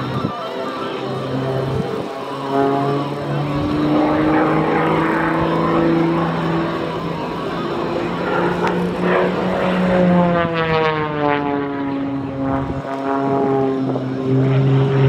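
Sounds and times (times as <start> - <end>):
propeller plane engine at high power: 0.0 - 15.0.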